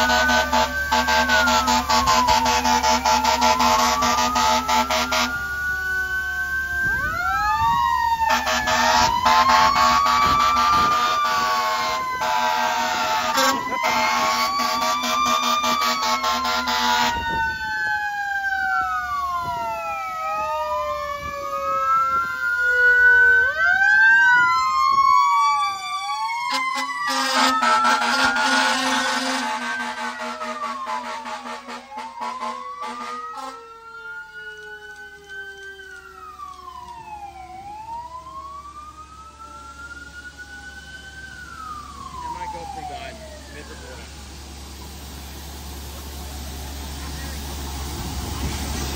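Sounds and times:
air horn blasts: 0.0 - 5.4, 8.3 - 17.4, 26.5 - 33.6
fire engine sirens wailing: 0.0 - 48.9.

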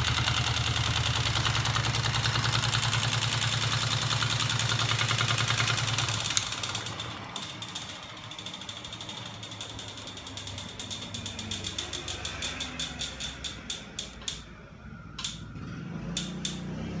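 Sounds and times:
fast regular mechanical clicking: 0.0 - 14.4.

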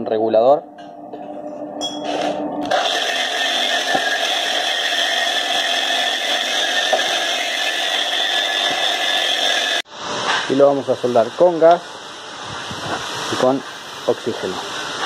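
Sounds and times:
angle grinder wire brush on copper: 2.0 - 11.8.

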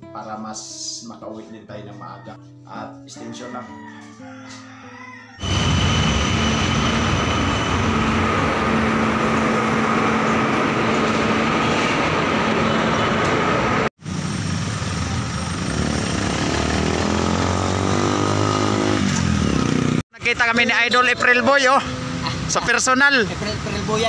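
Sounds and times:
train rumble and whine: 5.4 - 13.9
street traffic: 5.4 - 24.0.

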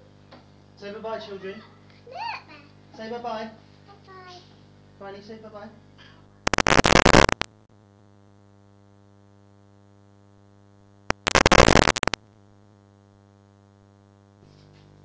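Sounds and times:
low buzzy electrical hum: 0.0 - 15.0
loud hissing static: 6.5 - 9.0, 11.0 - 14.4.

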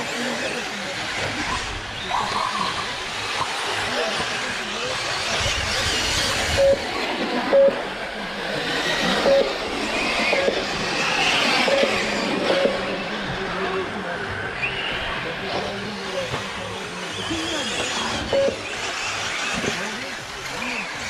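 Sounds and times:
short beeps: 6.6 - 6.8, 9.2 - 9.6, 18.3 - 18.6
model car motors hissing: 15.6 - 21.0.

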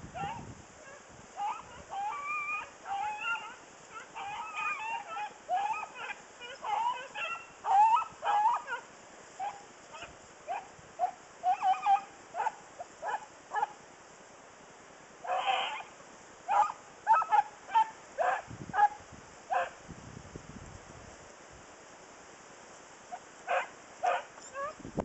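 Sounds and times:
hounds baying and yelping: 0.1 - 13.8, 15.2 - 19.8, 23.1 - 24.8.

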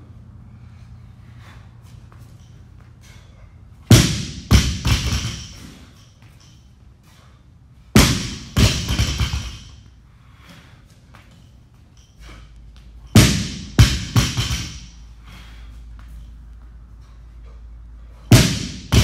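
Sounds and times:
barbell thudding on rubber floor: 3.9 - 5.6, 8.0 - 9.8, 13.2 - 15.0, 18.3 - 19.0
barbell rattling: 8.3 - 9.8.

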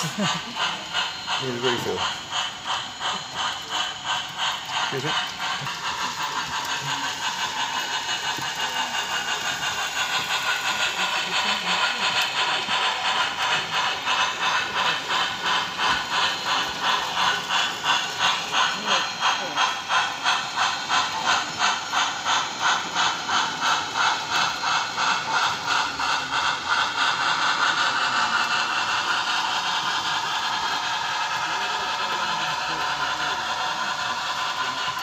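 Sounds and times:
model steam locomotive chuffing: 0.0 - 35.0.

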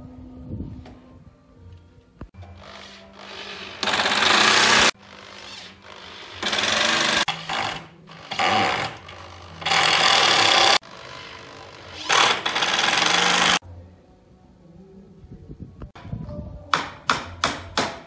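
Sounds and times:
electric drill boring into wood: 2.6 - 13.6.

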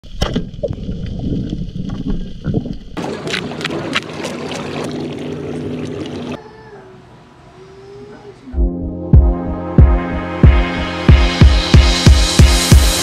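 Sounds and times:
wind: 0.0 - 8.6
boat noise: 3.0 - 7.2.

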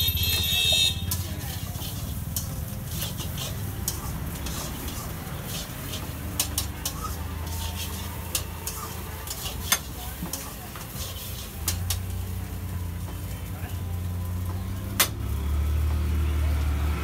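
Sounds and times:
metal spatula scraping griddle: 0.3 - 13.1.

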